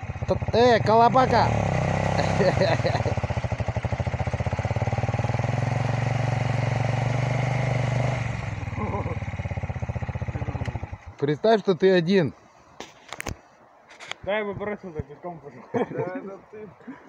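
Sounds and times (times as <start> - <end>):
dirt bike engine running: 0.0 - 11.2.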